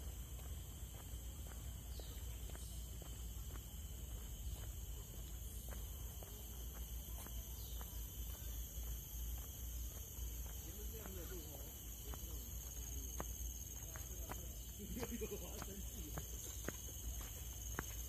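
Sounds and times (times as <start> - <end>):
footsteps on trail: 0.0 - 18.0
high-pitched insect drone: 0.1 - 18.0.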